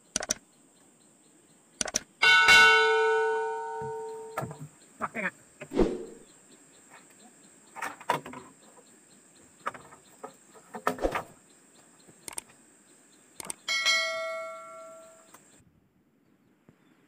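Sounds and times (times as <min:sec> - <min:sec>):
click: 0:00.1 - 0:00.4, 0:01.8 - 0:02.0, 0:12.2 - 0:12.5
bell-like ding: 0:02.2 - 0:04.5, 0:13.7 - 0:15.3.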